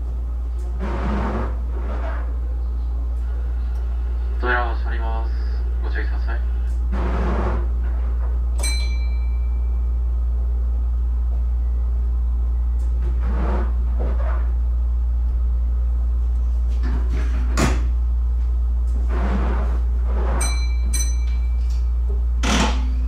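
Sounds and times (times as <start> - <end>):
low cab hum: 0.0 - 23.0
click with ringing ding: 8.6 - 9.6, 20.4 - 21.8.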